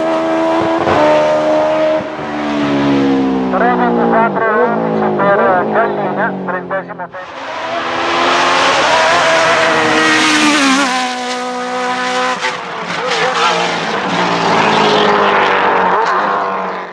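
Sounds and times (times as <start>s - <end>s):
engine revving at high revs: 0.0s - 16.9s.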